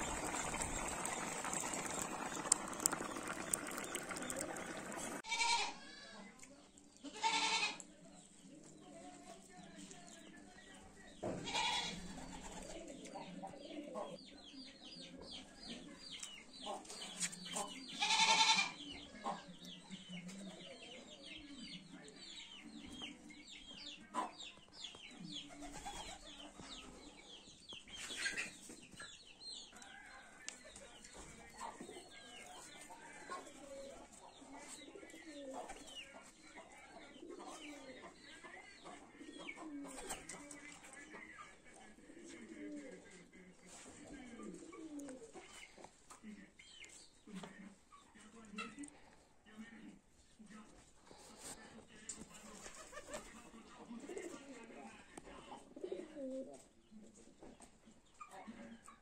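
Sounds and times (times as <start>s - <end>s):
small birds chirping: 0.0s - 5.2s.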